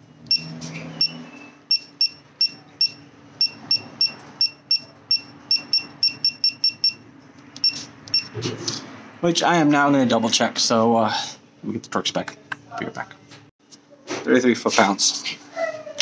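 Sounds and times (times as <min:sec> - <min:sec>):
short high keypad beeps: 0:00.3 - 0:07.0, 0:07.6 - 0:08.3.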